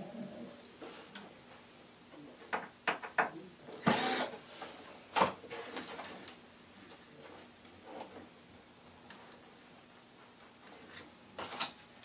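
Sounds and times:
clicks and knocks on wooden panel: 2.5 - 3.4
cordless drill driving screw: 3.8 - 4.3.

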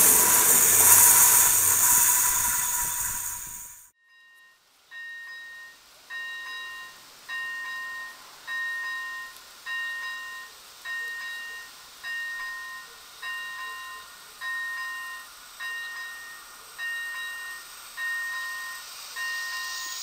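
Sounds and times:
level crossing warning bell: 4.1 - 20.0.

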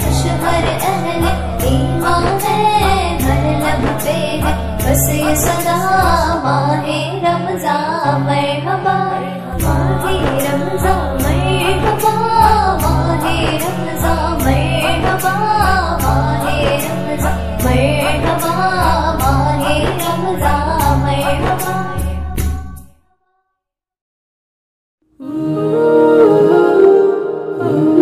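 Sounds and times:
steady percussion beat: 0.0 - 6.4, 9.6 - 22.8
woman singing: 0.0 - 22.4, 25.2 - 28.0.

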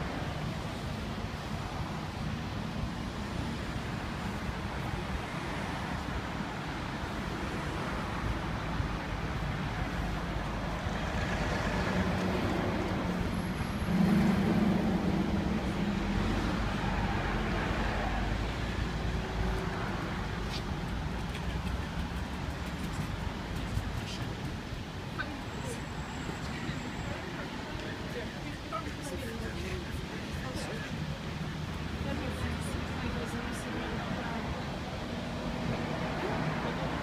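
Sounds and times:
road traffic passing: 0.0 - 37.0
vehicle engine hum passing: 4.2 - 30.3.

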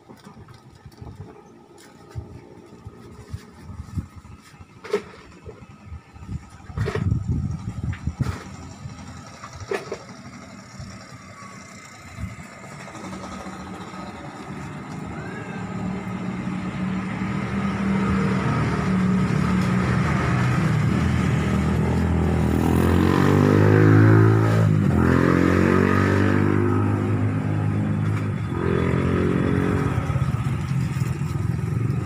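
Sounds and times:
vehicle engine passing: 6.4 - 32.0.

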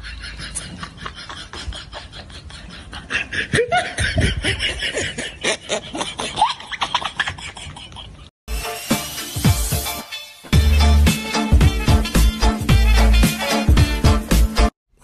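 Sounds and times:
people laughing: 0.0 - 8.3.

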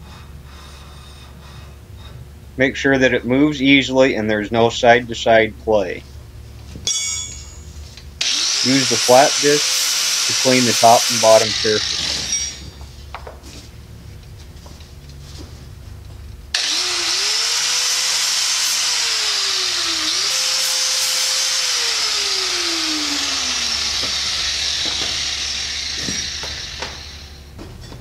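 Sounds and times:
cordless drill grinding steel: 8.2 - 12.6, 16.5 - 27.5.

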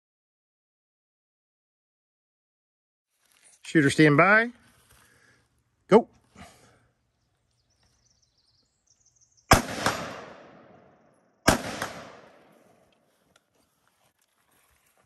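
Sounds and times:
rifle shots with echo: 9.5 - 12.8.

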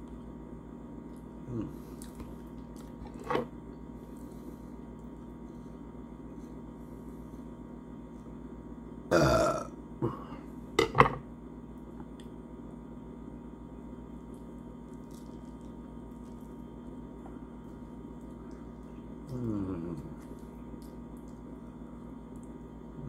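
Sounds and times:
low room hum: 0.0 - 23.0
man burping: 9.1 - 10.3.

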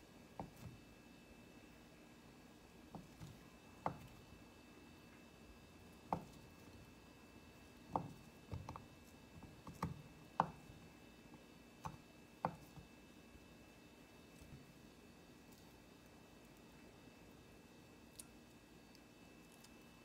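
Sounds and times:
knife knocking on cutting board: 6.1 - 6.5, 7.9 - 8.8.

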